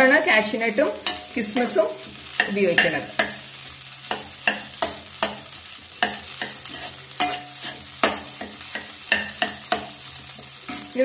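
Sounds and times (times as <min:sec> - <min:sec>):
potatoes sizzling in oil: 0:00.0 - 0:11.0
plastic spatula scraping a pan: 0:06.6 - 0:07.8.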